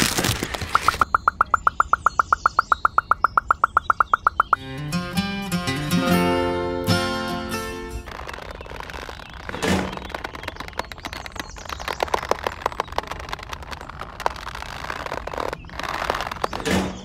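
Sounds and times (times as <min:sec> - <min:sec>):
rustling scrapes: 0:07.4 - 0:17.0.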